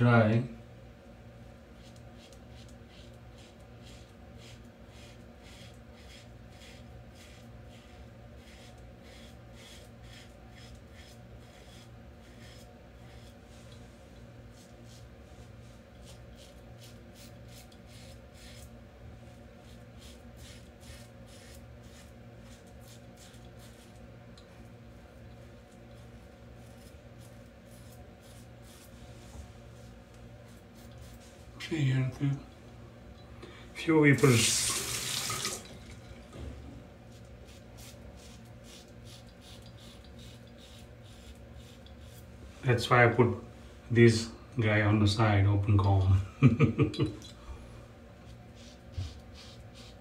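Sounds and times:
low steady hum: 0.0 - 50.0
razor rasping on stubble: 1.8 - 13.4, 16.0 - 18.7, 19.6 - 24.0, 25.9 - 28.9, 37.2 - 42.3, 48.5 - 50.0.

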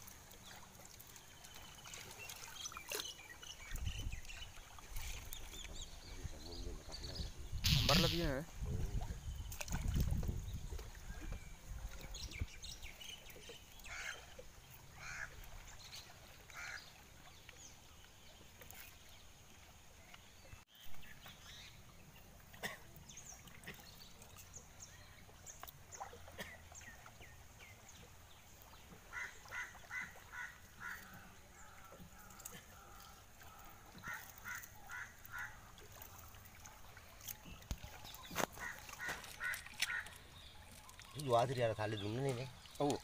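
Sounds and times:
water splashing and sloshing: 0.0 - 43.0
short calls: 7.6 - 8.4.

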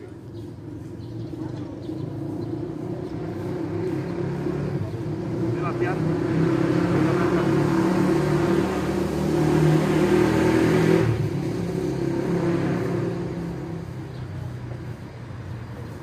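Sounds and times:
motor engine running: 0.0 - 10.0.

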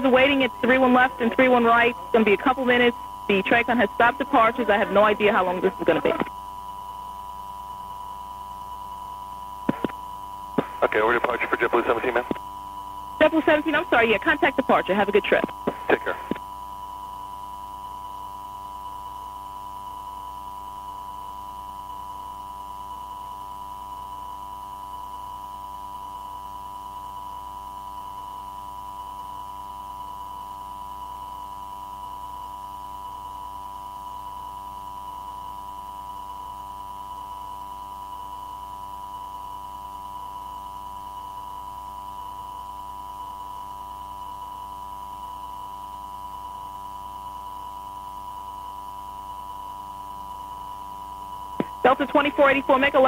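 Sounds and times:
low hum: 0.0 - 19.3.

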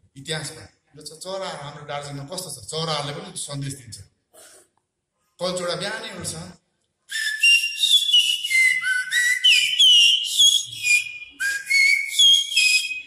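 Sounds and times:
man whistling birdsong: 7.1 - 13.0.

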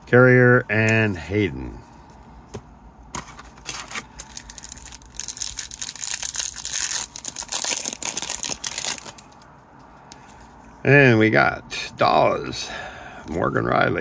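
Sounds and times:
wrapper tearing and crinkling: 3.6 - 9.4.

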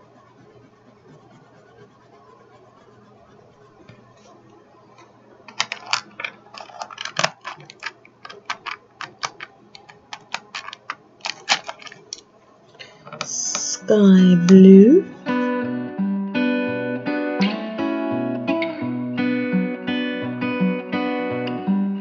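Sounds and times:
pencils clicking in plastic case: 5.5 - 12.2, 13.1 - 14.8.

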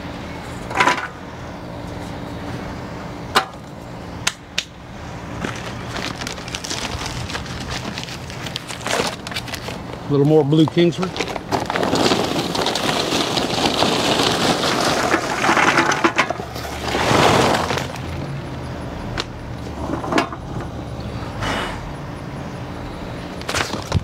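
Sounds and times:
charcoal clattering into metal hopper: 0.7 - 1.1, 10.7 - 18.2, 19.2 - 20.6.

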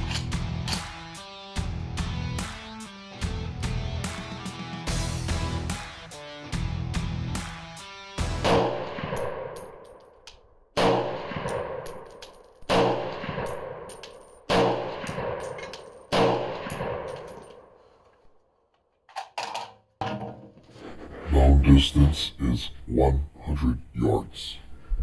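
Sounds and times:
rifle shots: 8.4 - 9.8, 10.8 - 12.1, 12.7 - 17.8
metallic clinks: 9.2 - 10.4, 11.5 - 12.7, 13.4 - 17.7.

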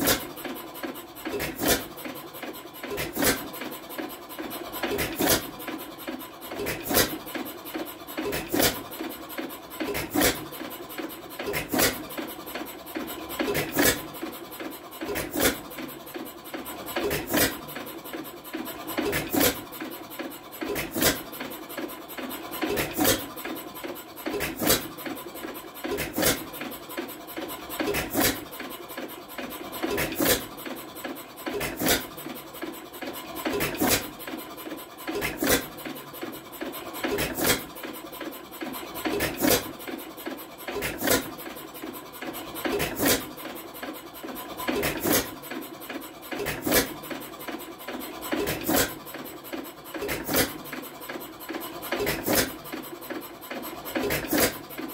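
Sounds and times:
engine clattering: 0.0 - 54.9.

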